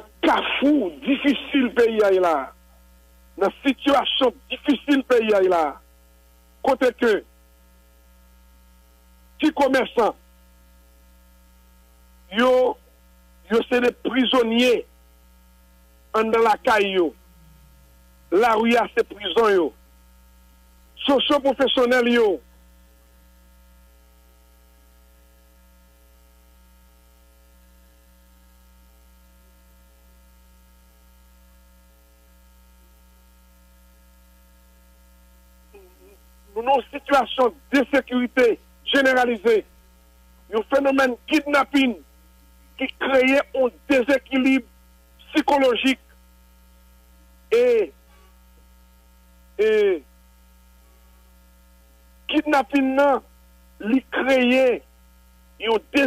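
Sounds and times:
electrical mains hum: 0:00.0 - 0:56.0
man's voiced hesitation: 0:00.2 - 0:02.5, 0:35.8 - 0:39.6, 0:42.8 - 0:44.6, 0:47.5 - 0:48.0, 0:49.6 - 0:50.0.

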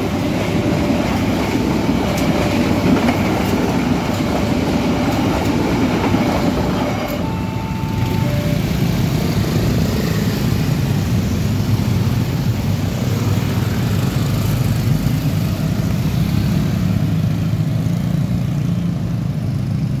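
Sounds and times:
motorcycle engines idling and pulling away: 0:06.4 - 0:20.0.

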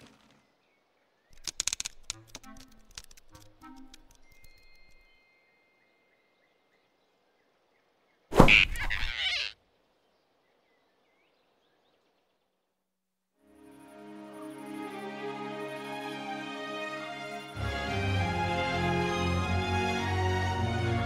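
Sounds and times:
faint forest ambience: 0:00.0 - 0:21.0
cartoon grab sound effect: 0:08.3 - 0:09.5.

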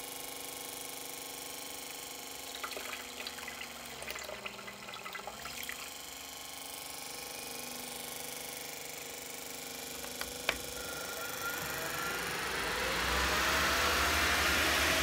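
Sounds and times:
steady machine hum: 0:02.3 - 0:15.0
water splashing into a bucket: 0:02.5 - 0:06.0.

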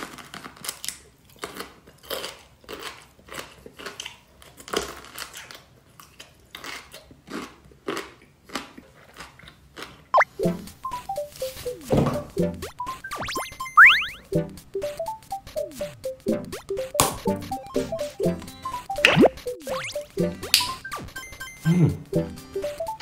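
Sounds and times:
person chewing wetly: 0:00.4 - 0:10.2
rising whistle sound effect: 0:12.6 - 0:14.3.

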